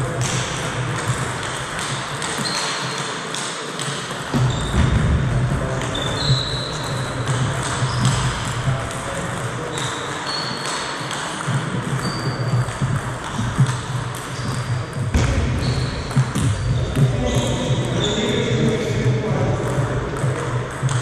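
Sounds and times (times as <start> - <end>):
table tennis ball bouncing: 0.0 - 21.0
shoes squeaking on wooden floor: 2.3 - 3.0, 4.3 - 8.7, 9.7 - 10.8, 11.8 - 18.8.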